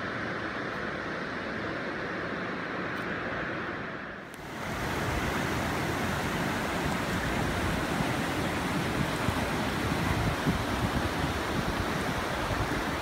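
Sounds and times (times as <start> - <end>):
river rapids rushing over rocks: 4.4 - 13.0.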